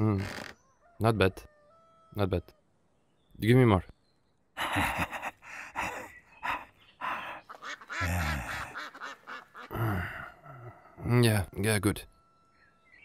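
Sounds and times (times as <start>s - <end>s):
throaty vocal noises: 8.0s - 8.8s, 9.7s - 11.1s.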